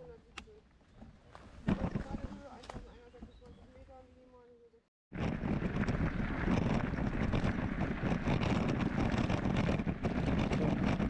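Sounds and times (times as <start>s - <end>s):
wind buffeting microphone: 5.1s - 11.0s.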